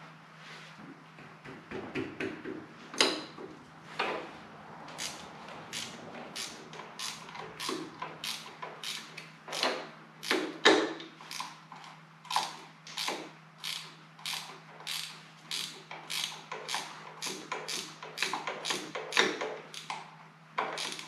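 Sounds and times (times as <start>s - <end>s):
ratchet wrench clicking: 5.0s - 10.5s, 11.3s - 11.6s, 12.3s - 20.0s, 20.6s - 21.0s.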